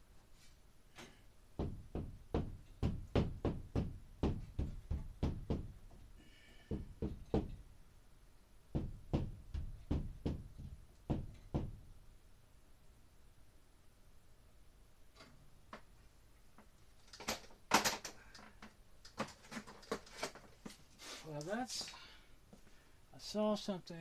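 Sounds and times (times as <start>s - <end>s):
knocking on a ceiling: 1.6s - 6.0s, 6.6s - 7.6s, 8.7s - 11.8s.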